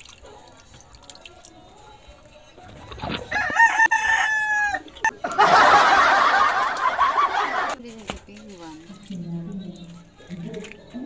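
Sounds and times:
rooster crowing: 3.2 - 7.8.

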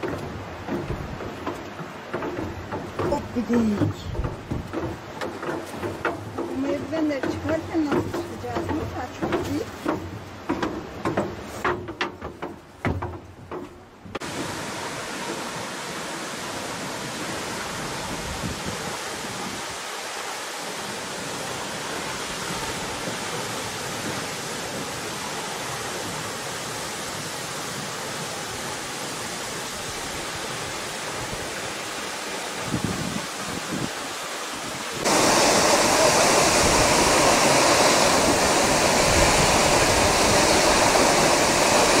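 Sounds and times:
waterfall rushing: 0.0 - 13.6, 14.2 - 42.0
sharp knocks: 0.0 - 14.3.

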